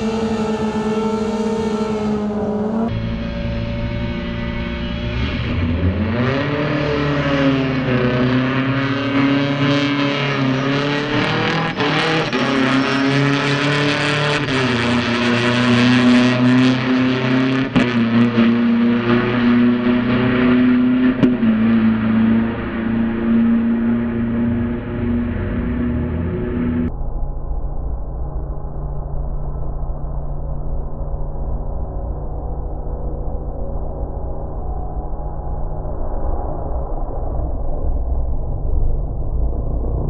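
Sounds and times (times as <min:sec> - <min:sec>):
motorcycle engines revving hard: 0:00.0 - 0:26.9.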